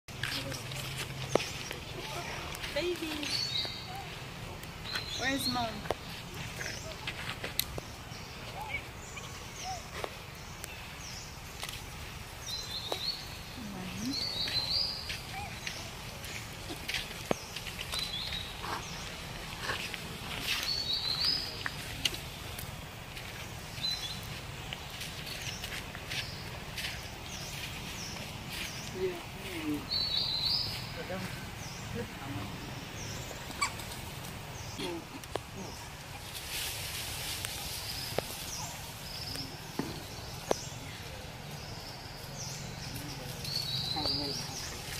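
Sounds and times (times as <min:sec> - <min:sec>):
steady background hiss: 0:00.8 - 0:44.9
monkey squeaking: 0:33.5 - 0:34.0.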